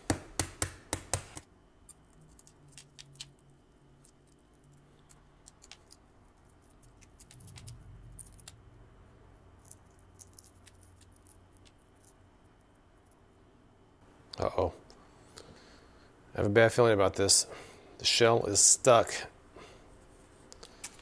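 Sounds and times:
eggshell crackling: 0:09.5 - 0:12.8.

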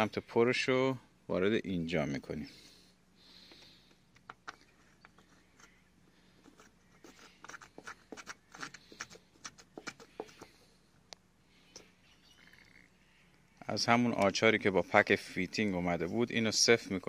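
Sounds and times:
metal stud clicking and scratching: 0:06.4 - 0:10.5.

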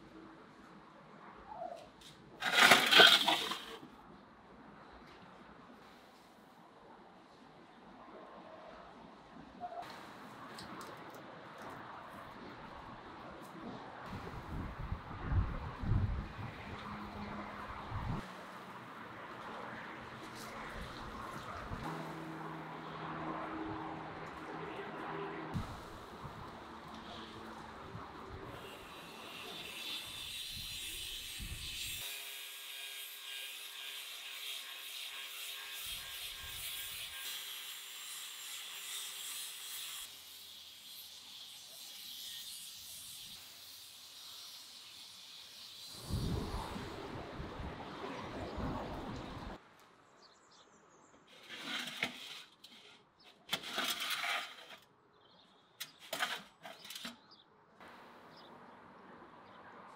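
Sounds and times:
scraping and rustling handling: 0:02.4 - 0:03.8
wind rumble on microphone: 0:13.7 - 0:18.2, 0:46.0 - 0:49.6
angle grinder grinding steel blade: 0:28.5 - 0:43.8.

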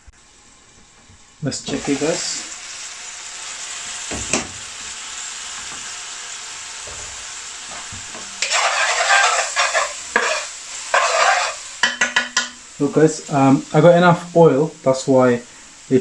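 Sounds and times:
onions sizzling in oil: 0:01.4 - 0:16.0
metal spoon scraping pan: 0:08.2 - 0:12.6.

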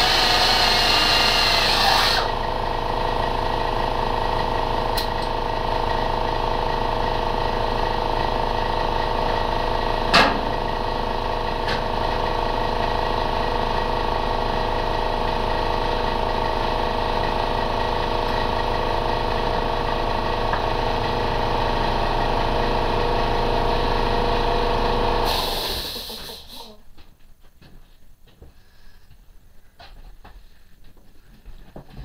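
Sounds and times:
steady machine hum: 0:00.0 - 0:26.9.

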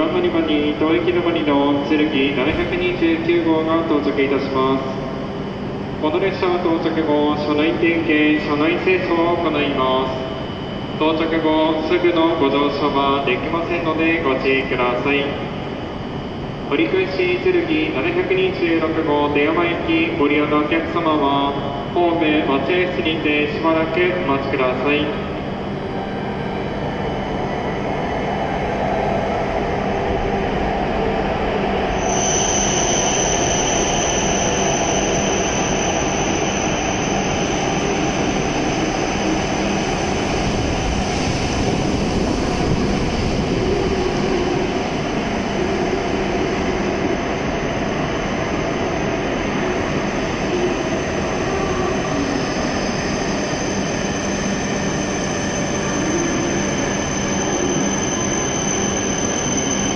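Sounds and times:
high steady whine: 0:00.0 - 0:59.9.

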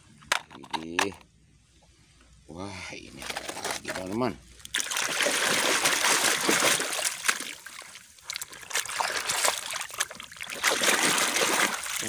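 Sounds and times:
water splashing and churning: 0:04.6 - 0:12.0.

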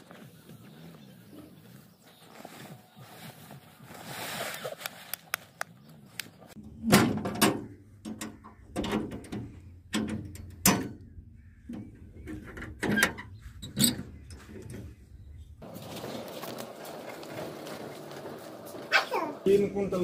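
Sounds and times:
tarpaulin rustling: 0:00.0 - 0:05.9, 0:15.6 - 0:20.0
metal frame clanking: 0:06.6 - 0:11.1
metal hand cart rattling: 0:15.6 - 0:20.0.

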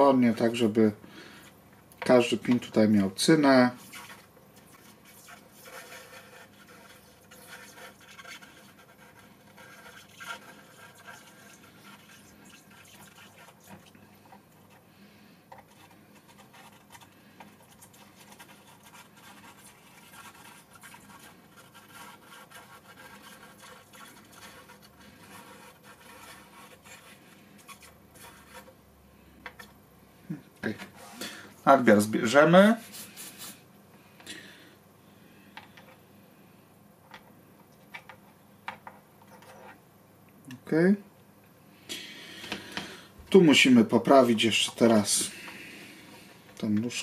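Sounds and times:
soldering iron scratching: 0:03.6 - 0:14.8, 0:15.5 - 0:28.8.

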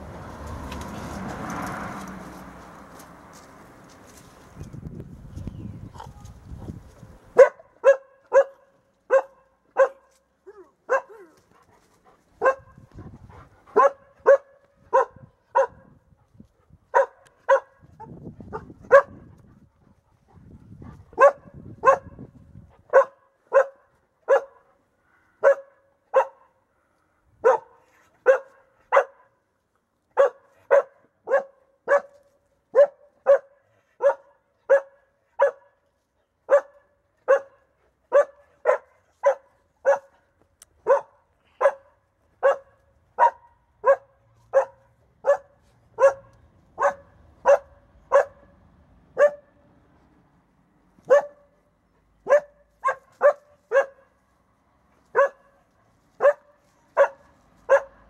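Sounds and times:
dog barking: 0:07.3 - 0:11.4, 0:12.4 - 0:12.8, 0:13.7 - 0:16.0, 0:16.9 - 0:19.3, 0:21.2 - 0:22.2, 0:22.9 - 0:24.7, 0:25.4 - 0:26.6, 0:27.4 - 0:29.4, 0:30.2 - 0:35.8, 0:36.5 - 0:40.2, 0:40.8 - 0:48.5, 0:49.2 - 0:49.5, 0:51.1 - 0:51.6, 0:52.2 - 0:54.1, 0:55.1 - 0:55.6, 0:56.2 - 0:58.0.

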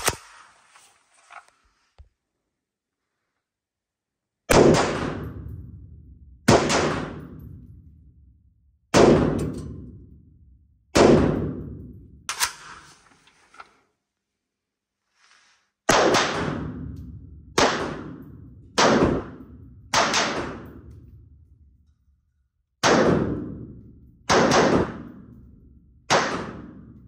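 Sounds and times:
rifle shots echoing indoors: 0:04.4 - 0:13.0, 0:15.9 - 0:27.0.

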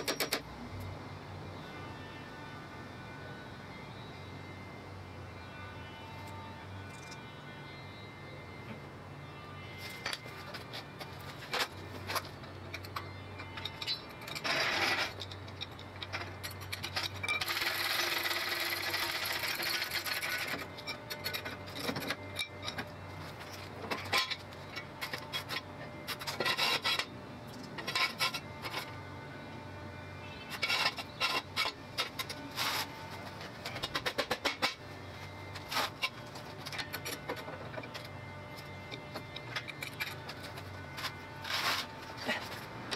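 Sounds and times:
metal scraping: 0:09.8 - 0:27.1, 0:27.8 - 0:29.0, 0:30.2 - 0:42.8.

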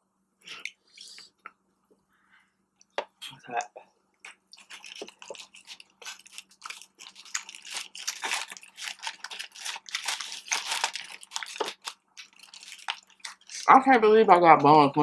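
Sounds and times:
chewing and crunching: 0:04.3 - 0:13.7
paper wrapper crinkling: 0:04.5 - 0:13.9.

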